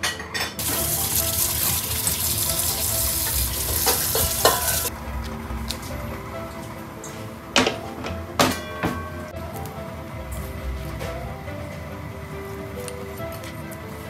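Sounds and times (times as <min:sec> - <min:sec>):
water splashing in sink: 0:00.6 - 0:04.9.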